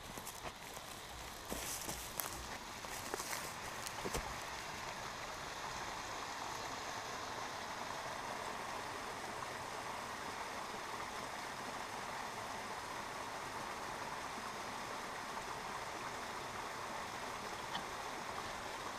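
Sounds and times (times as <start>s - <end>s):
creek water splashing: 0.0s - 7.5s.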